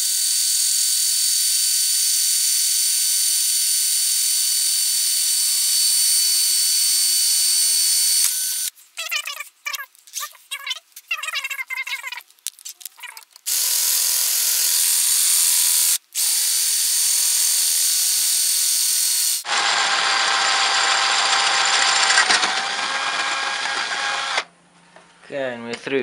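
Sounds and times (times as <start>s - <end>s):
power drill cutting metal: 0.0s - 8.7s, 13.5s - 24.5s.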